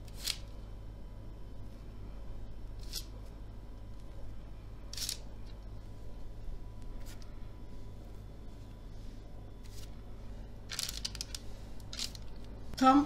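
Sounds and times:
low steady hum: 0.0s - 13.0s
baking parchment rustling: 9.6s - 12.6s.

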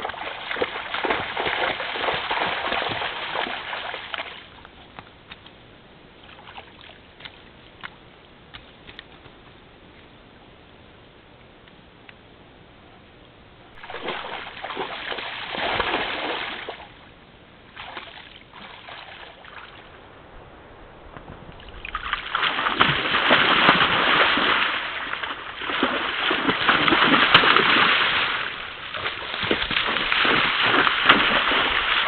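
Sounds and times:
moose splashing through water: 0.0s - 4.6s, 13.8s - 17.0s, 17.7s - 32.0s.

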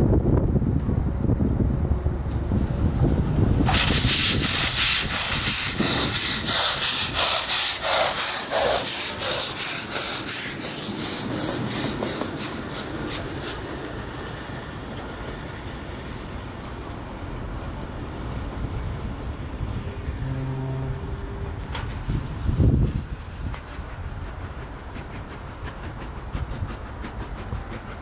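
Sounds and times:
steam locomotive exhaust chuffing: 1.6s - 28.0s
heavy hiss of steam: 2.4s - 15.2s, 21.7s - 28.0s.

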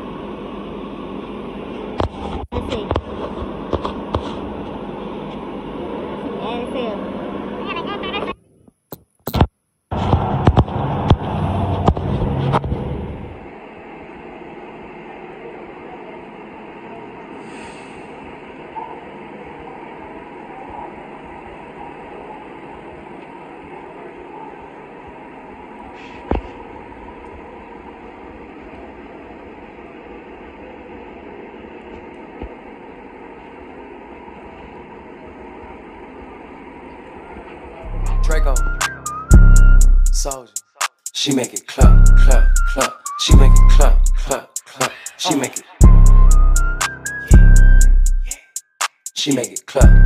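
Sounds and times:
steady city hiss: 0.0s - 2.3s, 3.1s - 8.3s, 12.9s - 50.0s
low street rumble: 0.0s - 8.3s, 9.9s - 40.4s.

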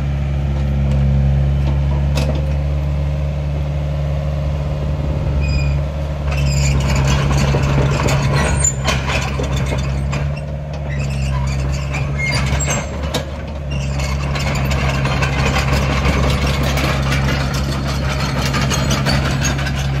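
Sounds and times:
diesel engine running: 0.0s - 20.0s
brief squeaks: 5.3s - 7.5s, 8.1s - 13.0s
track chains clattering: 6.3s - 20.0s.

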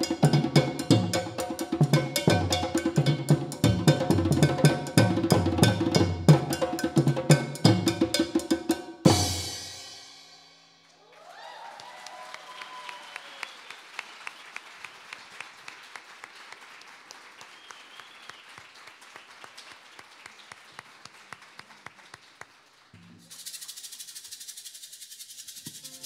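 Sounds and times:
people cheering: 10.9s - 21.7s
audience applauding: 11.0s - 23.3s
rhythmic clapping: 13.4s - 24.4s
shaker: 23.2s - 26.0s.

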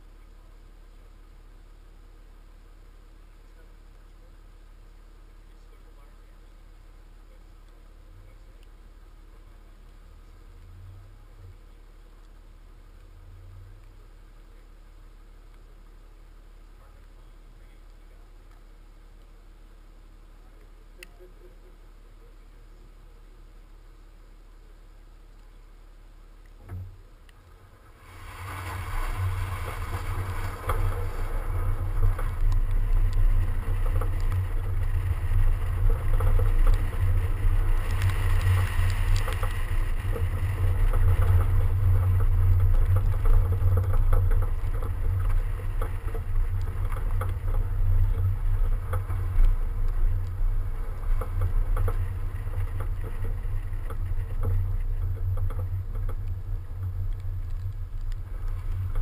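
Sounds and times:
road noise rumble: 0.0s - 59.0s
wind buffeting: 27.6s - 59.0s
tyres hissing on snow: 27.7s - 42.4s.

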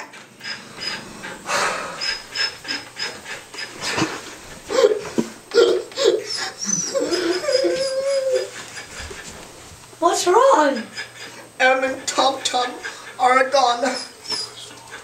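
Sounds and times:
person sobbing: 4.7s - 8.5s.

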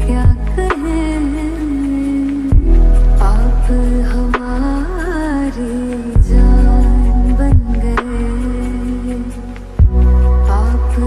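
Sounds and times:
slowed film song with deep bass: 0.0s - 11.0s
heavy low drum hits: 7.5s - 7.8s.

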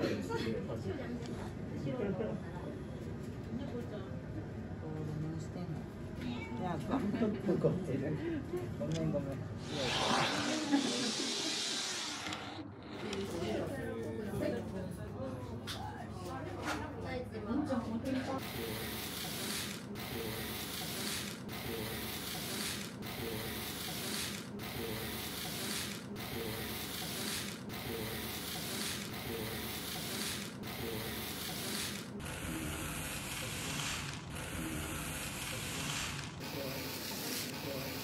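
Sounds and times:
model train whirring: 9.6s - 13.6s, 18.4s - 38.0s.

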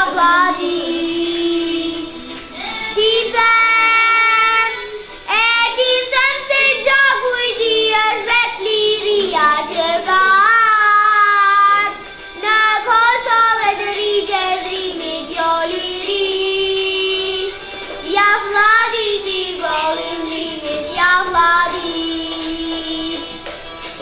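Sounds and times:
girl singing into microphone: 0.0s - 23.6s
singer breathing: 2.2s - 3.0s.

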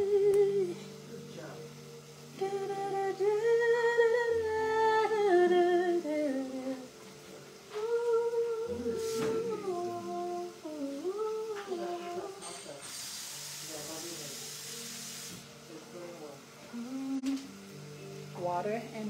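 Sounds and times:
woman humming: 0.0s - 1.0s, 7.7s - 12.4s, 16.6s - 17.6s.

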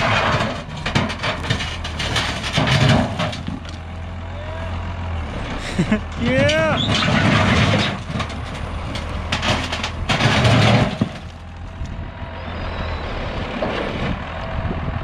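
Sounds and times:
bucket scraping broken concrete: 0.0s - 3.8s, 6.1s - 11.6s
tractor engine running: 0.0s - 15.0s.

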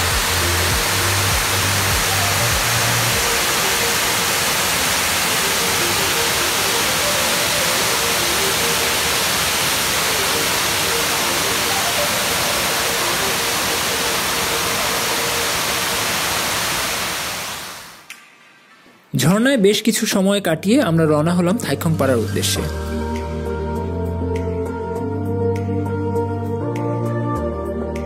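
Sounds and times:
waterfall splashing into pool: 0.0s - 18.1s.

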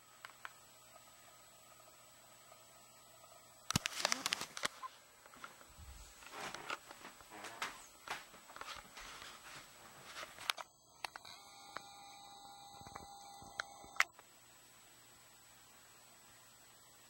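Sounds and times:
faint steady hum: 0.0s - 17.0s
sharp camera clicks: 3.7s - 4.8s
camera handling rustling: 3.7s - 5.6s.

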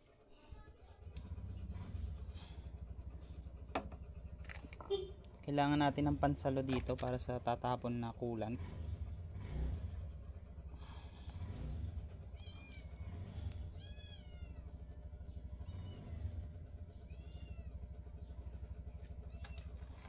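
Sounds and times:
cat meowing: 12.4s - 13.0s, 13.7s - 14.7s, 17.1s - 17.8s.

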